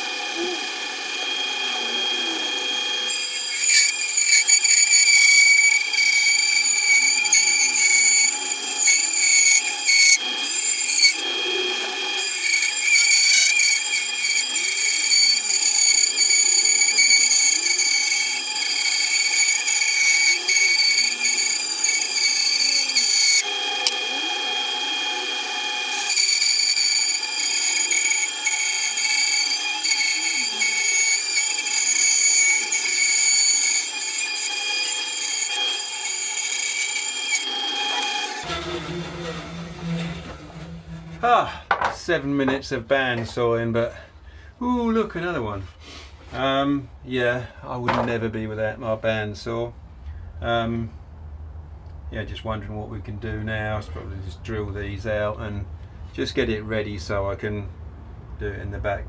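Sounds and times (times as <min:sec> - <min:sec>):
bandsaw whining: 0:00.0 - 0:41.9
blade rasping in wood: 0:03.1 - 0:24.0, 0:25.9 - 0:41.3.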